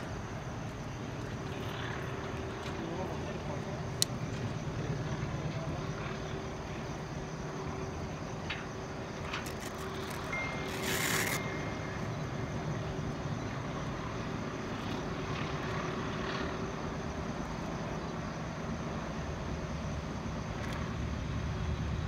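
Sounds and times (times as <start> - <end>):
distant rumble of vehicles: 0.0 - 22.0
brief hiss: 10.4 - 11.8.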